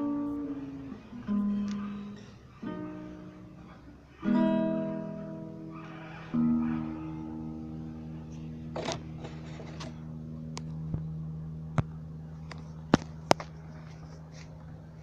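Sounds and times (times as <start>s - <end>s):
guitar chord ringing: 0.0s - 15.0s
phone scraping: 8.7s - 10.0s.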